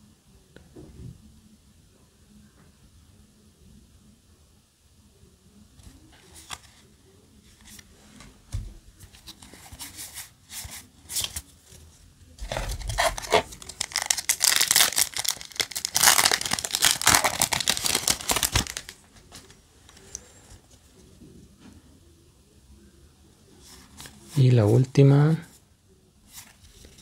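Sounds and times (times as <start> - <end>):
cards being handled: 9.0 - 11.8, 12.4 - 20.6
foil pack crinkling and tearing: 12.4 - 19.1.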